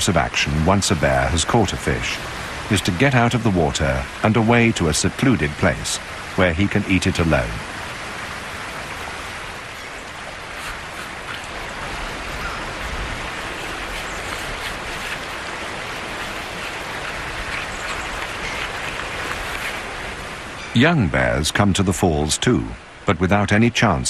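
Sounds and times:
river water roaring over falls: 0.0s - 24.0s.

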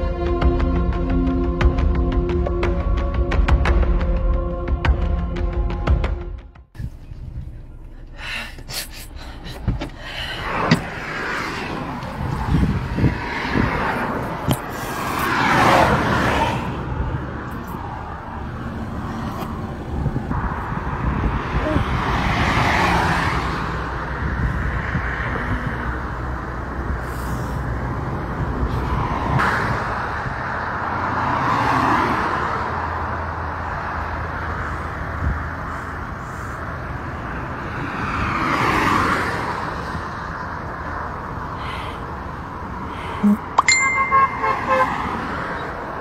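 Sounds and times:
low rumble of traffic: 6.6s - 46.0s
wind buffeting microphone: 9.4s - 14.8s, 19.4s - 23.1s, 23.7s - 27.0s.

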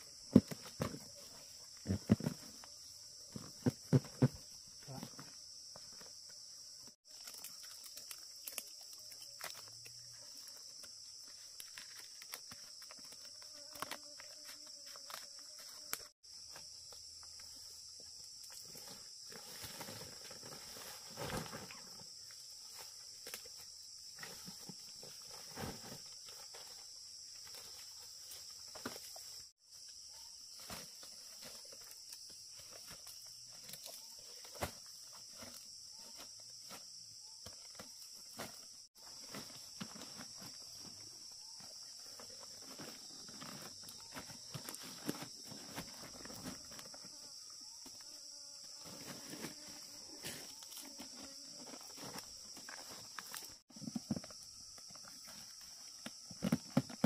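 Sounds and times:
insects chorus: 0.0s - 57.0s
rustles and snaps: 7.1s - 10.0s.

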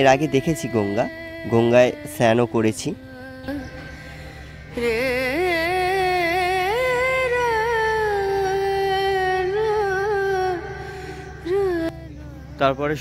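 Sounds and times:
person singing: 0.0s - 12.7s
steady low hum: 0.0s - 13.0s.

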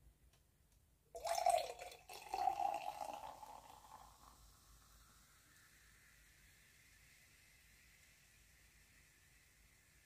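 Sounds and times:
liquid pouring: 1.2s - 5.5s.

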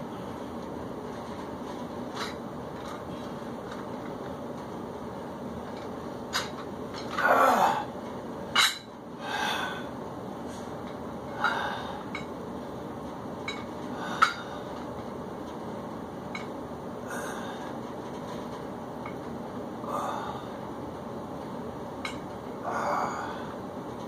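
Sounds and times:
steady background hiss: 0.0s - 24.0s
dumbbells clinking: 8.5s - 8.9s, 13.4s - 14.7s, 22.0s - 22.4s
man exhaling and breathing heavily: 9.2s - 12.1s, 13.9s - 14.8s, 17.0s - 17.8s, 19.8s - 20.7s, 22.6s - 23.6s.

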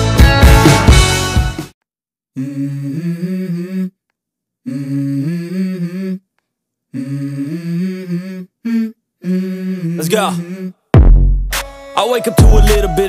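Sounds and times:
person humming a melody: 2.4s - 4.0s, 4.6s - 6.3s, 6.9s - 10.9s.

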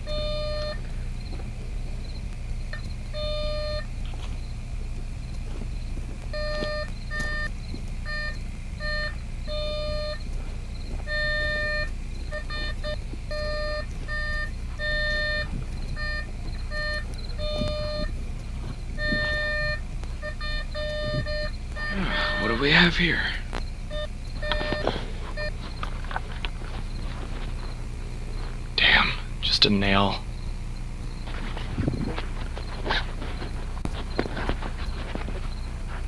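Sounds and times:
metal detector beeping: 0.0s - 1.4s, 2.0s - 4.6s, 5.3s - 28.6s
low steady rumble: 0.0s - 36.0s.

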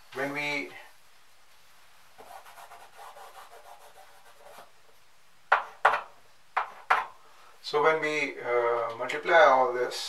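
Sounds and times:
scratching on a chalkboard: 2.2s - 4.7s.

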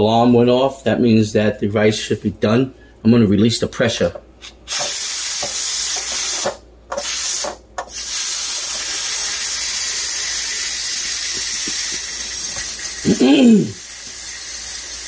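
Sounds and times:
pressure cooker steam hissing: 4.4s - 15.0s.

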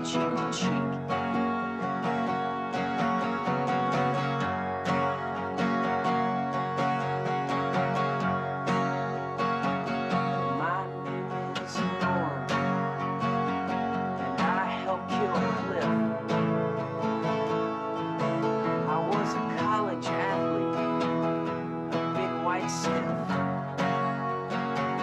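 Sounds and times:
man singing: 0.0s - 1.0s, 10.1s - 12.8s, 14.2s - 16.4s, 18.2s - 23.4s
acoustic guitars strummed: 0.0s - 25.0s.

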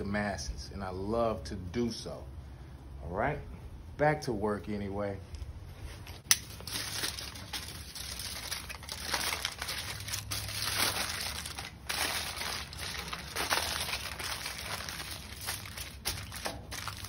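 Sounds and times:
aluminium foil crinkling: 6.0s - 17.0s.

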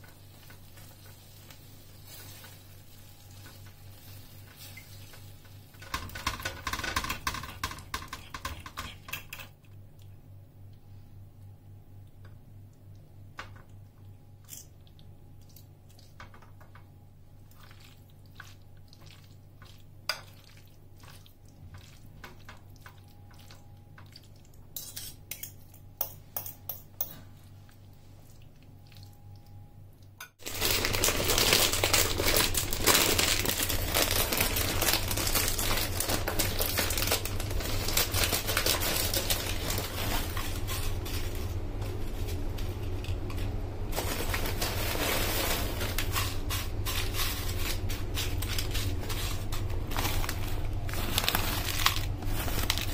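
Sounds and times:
spoons clinking on glass dish: 24.8s - 27.2s
tortilla chips rattling into bowl: 30.4s - 41.5s, 43.9s - 52.9s.

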